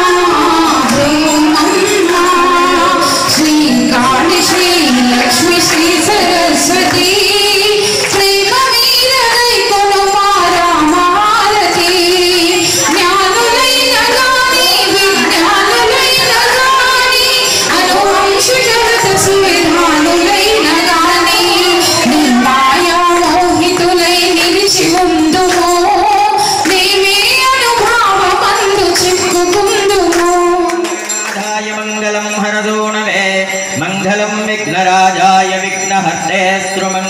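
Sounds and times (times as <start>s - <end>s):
women singing devotional song: 0.0s - 31.5s.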